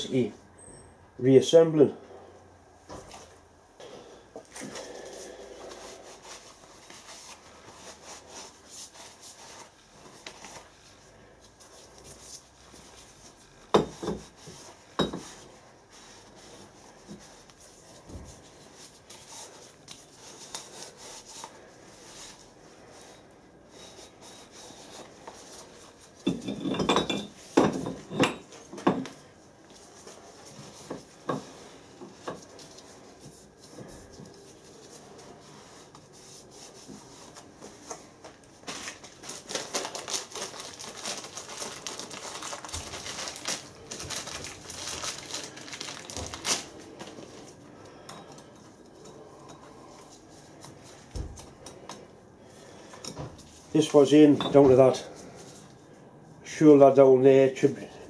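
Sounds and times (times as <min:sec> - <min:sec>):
cloth rubbing on metal: 0:04.8 - 0:39.5
metal knocks and clinks: 0:26.2 - 0:29.0.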